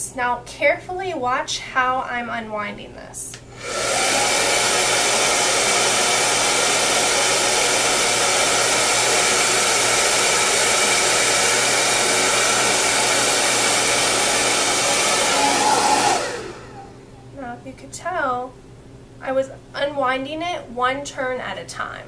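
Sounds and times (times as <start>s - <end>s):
hair dryer blowing: 3.5s - 17.0s.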